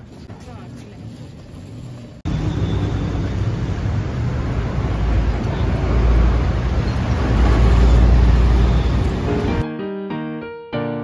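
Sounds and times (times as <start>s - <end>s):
cars driving past: 2.2s - 9.6s.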